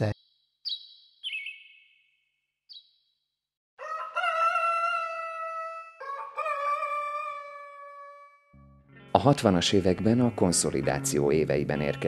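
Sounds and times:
high bird chirp: 0.0s - 3.2s
rooster crowing: 3.8s - 8.5s.

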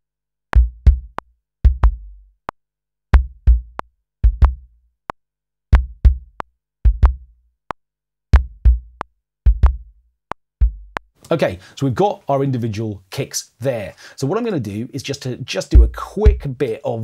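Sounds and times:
deep kick drum: 0.6s - 2.2s, 3.1s - 4.7s, 5.7s - 7.3s, 8.3s - 10.0s, 10.6s - 11.0s, 15.8s - 16.6s.

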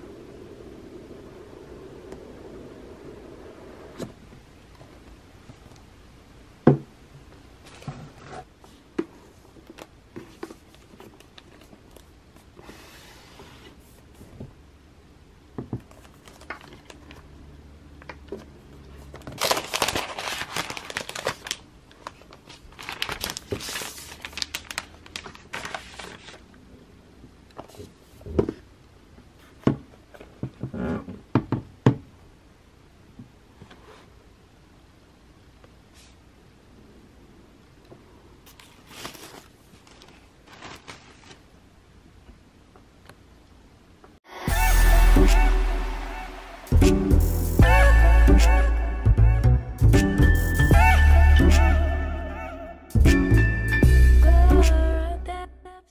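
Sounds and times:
plastic wrap crinkling: 15.9s - 17.3s, 19.2s - 26.6s, 38.5s - 41.6s.

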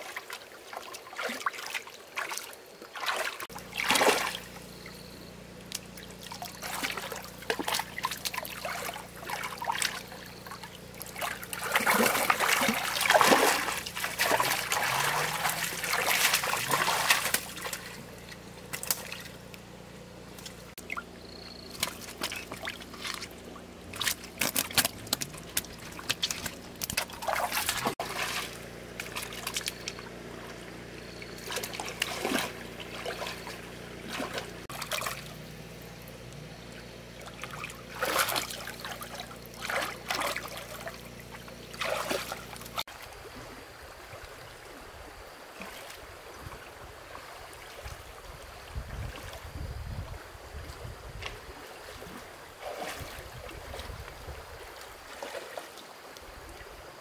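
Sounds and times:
water splashing and trickling: 0.0s - 57.0s
steady low hum: 3.4s - 45.2s.

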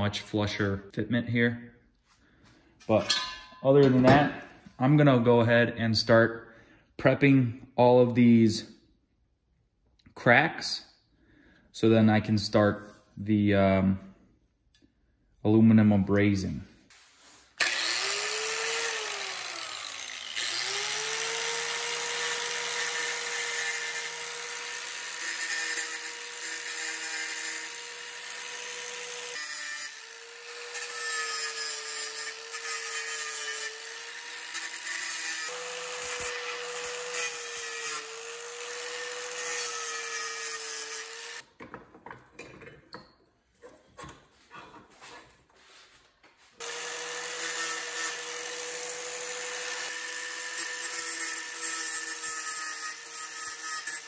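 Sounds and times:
angle grinder grinding metal: 17.6s - 41.5s, 46.6s - 54.0s.

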